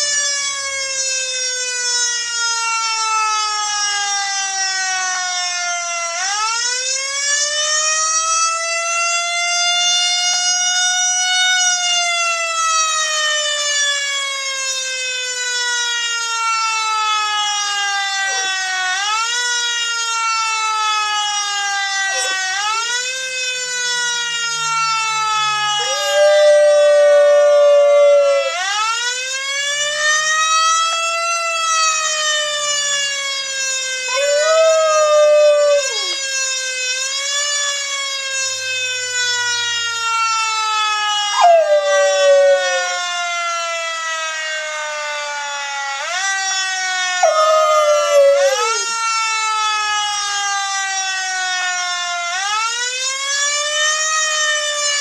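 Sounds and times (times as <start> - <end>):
siren wailing: 0.0 - 55.0
dog howling: 18.2 - 18.6, 22.1 - 22.6, 25.8 - 28.6, 34.1 - 36.3, 41.4 - 43.2, 47.2 - 48.9.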